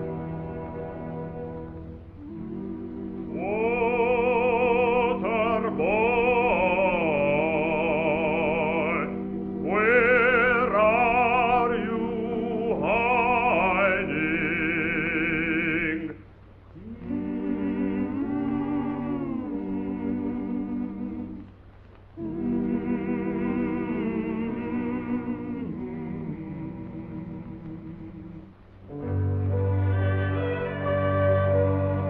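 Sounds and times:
operatic singing: 0.0 - 32.0
sustained low chords: 22.2 - 32.0.

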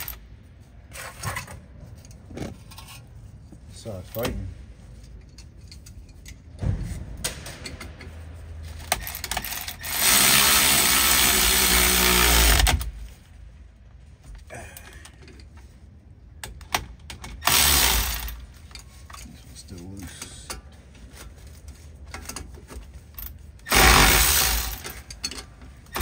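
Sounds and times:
cordless power tool running: 9.8 - 12.8, 23.7 - 24.8.

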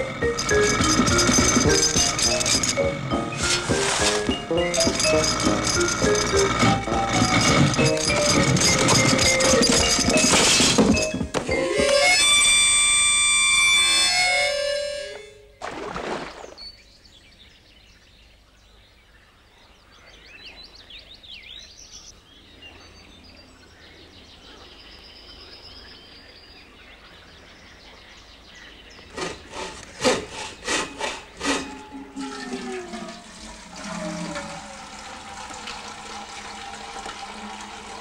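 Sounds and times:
wavering pitched tone: 0.0 - 15.6, 31.5 - 34.8.

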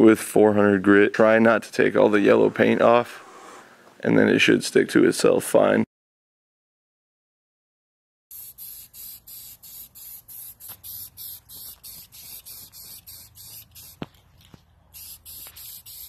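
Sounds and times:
spray paint can hissing: 8.3 - 14.3, 14.9 - 16.0.

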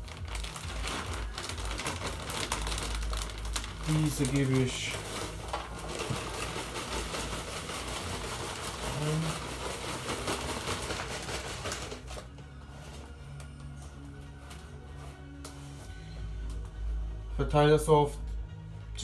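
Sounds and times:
soil pouring: 0.0 - 12.3
plastic bag crinkling: 0.0 - 13.6.

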